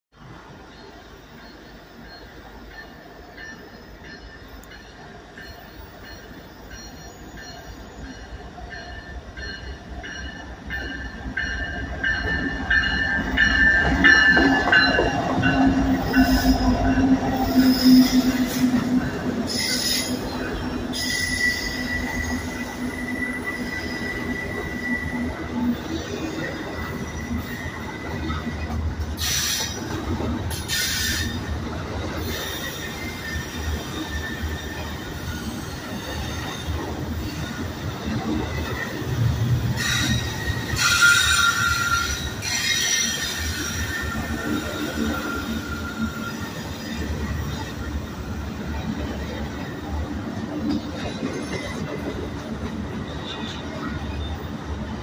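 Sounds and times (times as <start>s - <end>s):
diesel locomotive engine drone: 0.2s - 55.0s
sharp squeals and clanks: 14.0s - 31.4s, 32.2s - 37.7s, 39.7s - 48.0s
high wheel squeal: 15.7s - 28.6s, 32.2s - 37.7s, 39.7s - 48.4s.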